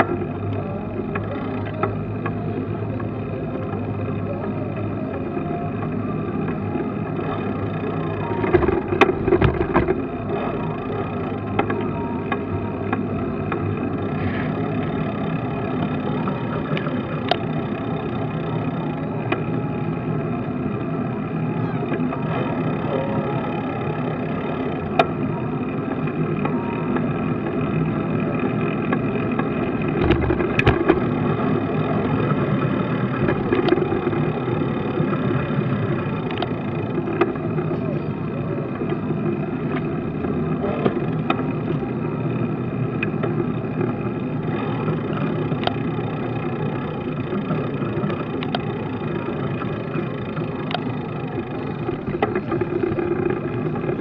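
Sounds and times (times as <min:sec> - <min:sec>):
road and wind rumble: 0:00.0 - 0:54.0
bicycle clicks and knocks: 0:05.8 - 0:21.2, 0:23.7 - 0:37.9, 0:38.7 - 0:54.0
sharp clicks and knocks: 0:08.4 - 0:10.3, 0:28.8 - 0:31.4, 0:33.1 - 0:34.2, 0:51.7 - 0:54.0.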